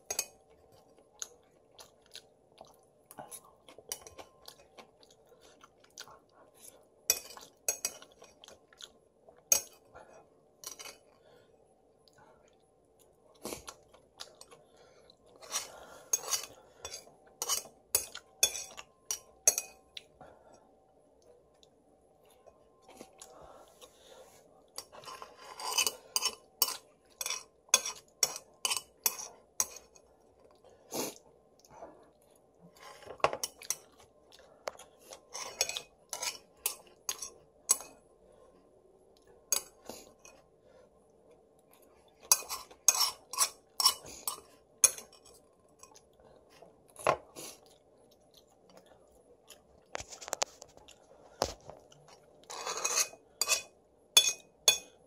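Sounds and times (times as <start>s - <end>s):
person chewing: 0.6s - 9.9s, 12.0s - 20.2s
chopsticks clinking on plate: 52.5s - 55.0s.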